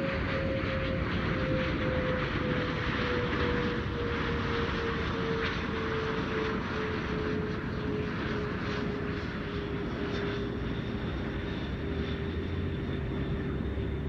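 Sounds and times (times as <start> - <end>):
faint distant drone: 0.0 - 14.0
outdoor background noise: 0.0 - 14.0.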